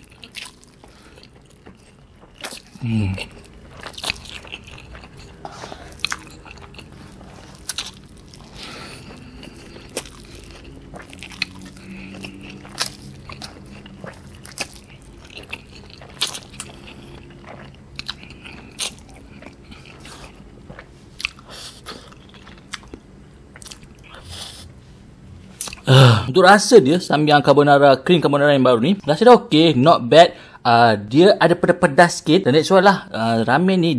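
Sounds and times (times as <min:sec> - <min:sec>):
man chewing noodles: 0:00.0 - 0:24.8, 0:25.5 - 0:26.2.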